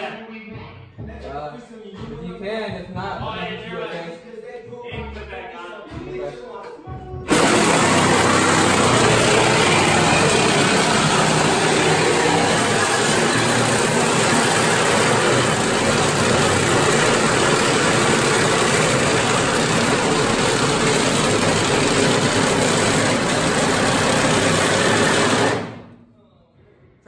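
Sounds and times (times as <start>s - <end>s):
power tool cutting sheet metal: 7.3s - 25.9s.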